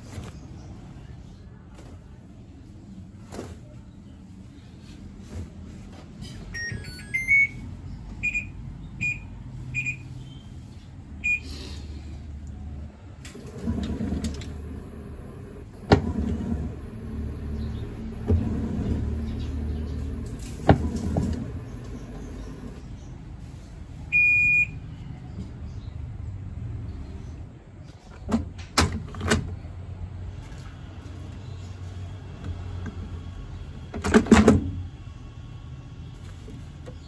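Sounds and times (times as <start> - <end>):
control panel beeps: 6.5 - 7.6, 8.2 - 10.0, 11.2 - 11.4
washing machine motor hum: 13.2 - 23.0.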